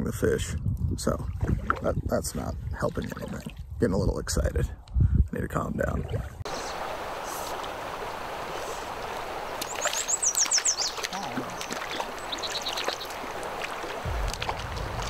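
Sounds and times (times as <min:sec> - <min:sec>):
river water flowing: 0:06.4 - 0:15.0
bird trilling: 0:09.7 - 0:13.2.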